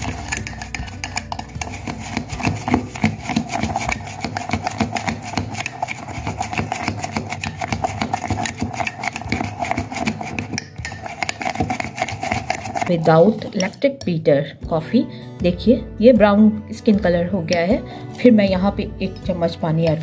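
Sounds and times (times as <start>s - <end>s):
metal spoon clinking in glass mug: 4.2s - 12.9s.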